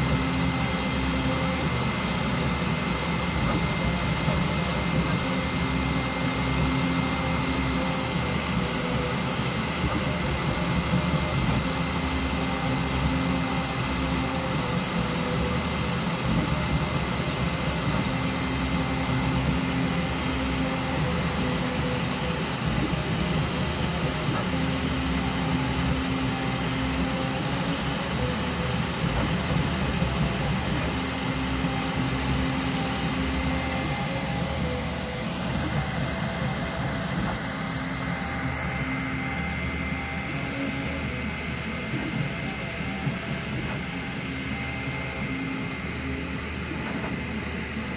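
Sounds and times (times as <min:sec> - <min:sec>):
low hum of print head: 0:00.0 - 0:47.9
printer whirring with high whine: 0:00.0 - 0:47.9.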